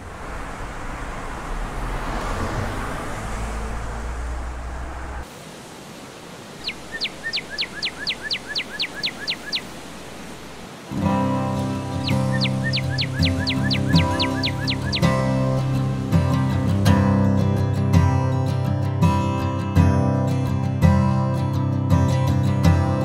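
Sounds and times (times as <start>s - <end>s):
bird whistling: 6.6s - 9.7s, 12.0s - 15.4s
acoustic guitar music: 10.9s - 23.0s.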